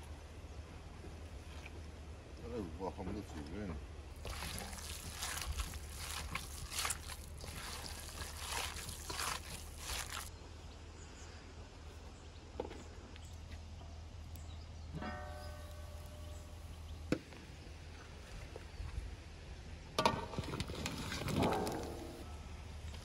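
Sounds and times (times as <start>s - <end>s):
hands squelching meat filling: 4.1s - 10.3s.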